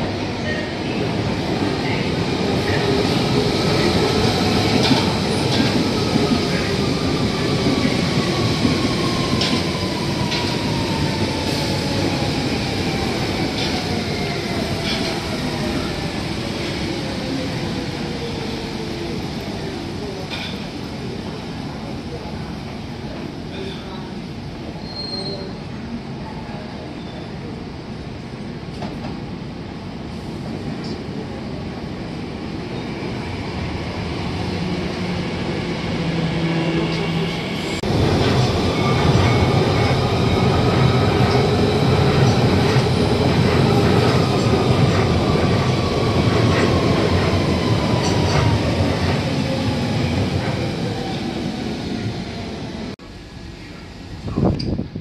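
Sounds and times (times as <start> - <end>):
train rumbling on rails: 0.0 - 55.0.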